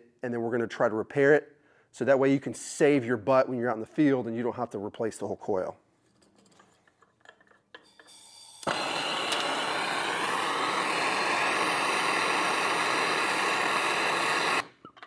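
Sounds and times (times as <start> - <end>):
low gas hiss: 7.8 - 14.7
gas torch flame hiss: 7.9 - 14.8.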